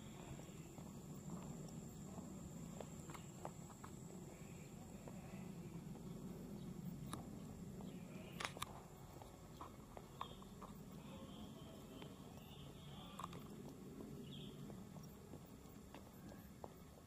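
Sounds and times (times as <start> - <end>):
footsteps on concrete: 0.0 - 17.0
sharp clicks: 8.3 - 8.8.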